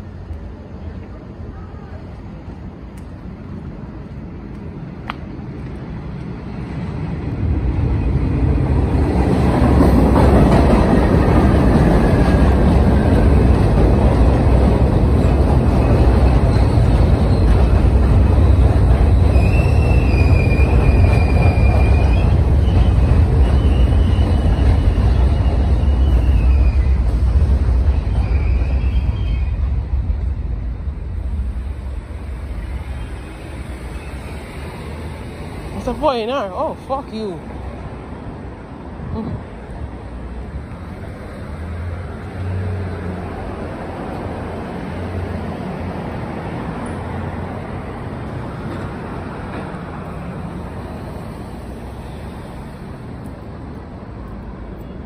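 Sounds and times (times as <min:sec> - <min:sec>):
subway train rumble: 0:00.0 - 0:55.0
high wheel squeal: 0:15.8 - 0:27.3, 0:28.0 - 0:29.8, 0:32.4 - 0:35.8.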